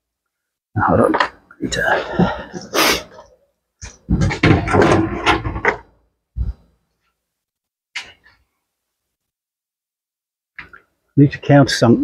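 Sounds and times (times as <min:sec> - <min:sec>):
tools knocking and clattering: 0:03.8 - 0:06.0.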